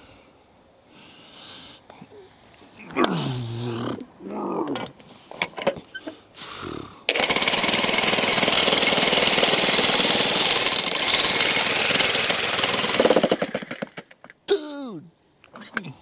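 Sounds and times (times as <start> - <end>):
electric jackhammer hammering: 7.1 - 14.0.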